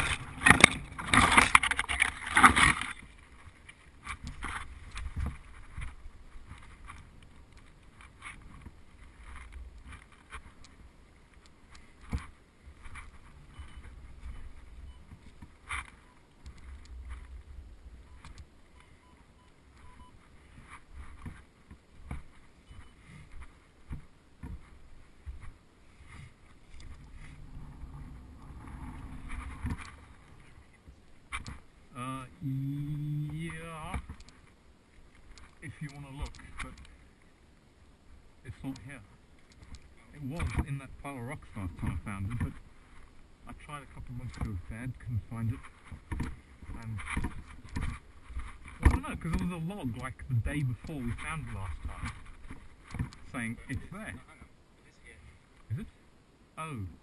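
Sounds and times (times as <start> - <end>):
branches cracking: 0.0 - 17.6, 45.4 - 54.4
branches brushing and rustling: 0.0 - 54.7.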